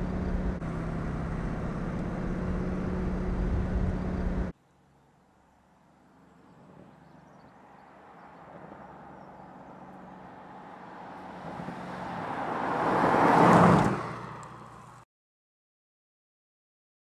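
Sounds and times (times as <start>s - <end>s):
car engine passing by: 5.8s - 15.0s.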